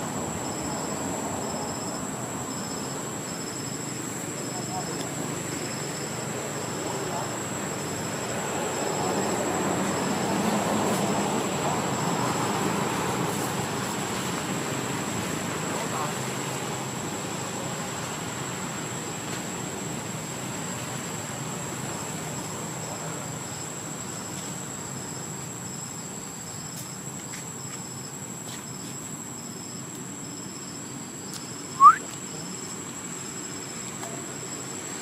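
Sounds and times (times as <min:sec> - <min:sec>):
insects droning: 0:00.0 - 0:35.0
insect trilling in pulses: 0:31.6 - 0:32.0
sharp rising chirp: 0:31.7 - 0:32.0.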